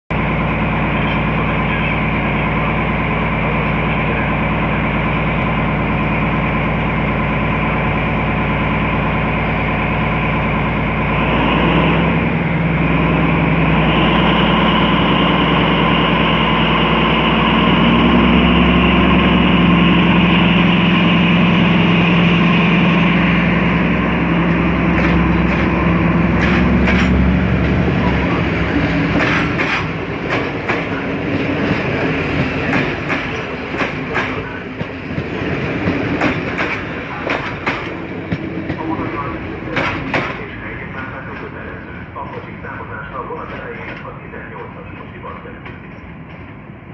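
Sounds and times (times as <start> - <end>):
diesel locomotive engine: 0.1 - 46.9
train wheels clicking over rail joints: 24.5 - 39.0, 39.6 - 40.6, 43.4 - 46.7.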